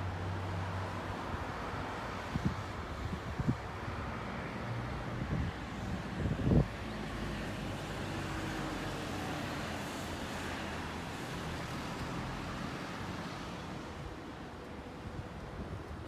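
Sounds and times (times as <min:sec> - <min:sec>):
road traffic: 0:00.0 - 0:16.0
wind buffeting microphone: 0:01.3 - 0:08.3, 0:13.0 - 0:16.0.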